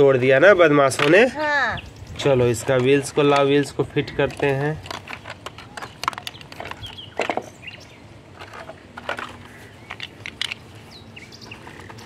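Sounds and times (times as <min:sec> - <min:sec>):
plastic toy parts clicking on concrete: 0:02.7 - 0:07.5, 0:08.4 - 0:10.7.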